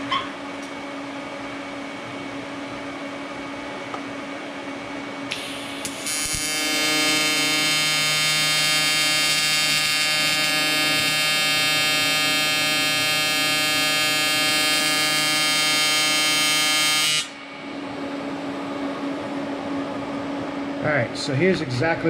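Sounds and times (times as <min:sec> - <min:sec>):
welding arc buzzing: 0:05.3 - 0:19.3.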